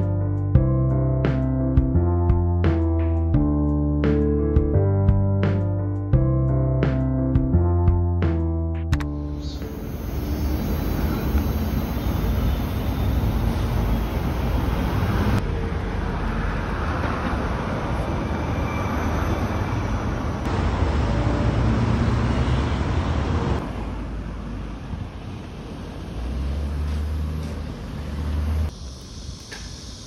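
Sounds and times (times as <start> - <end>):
road traffic rumble: 9.0 - 30.0.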